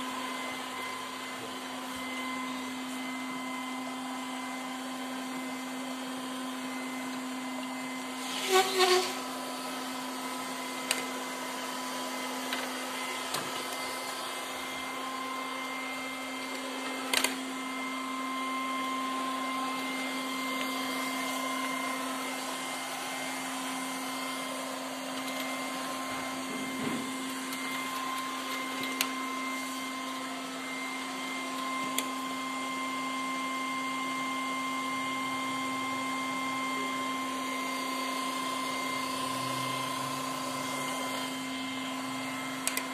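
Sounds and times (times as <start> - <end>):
robot vacuum motor hum: 0.0 - 42.9.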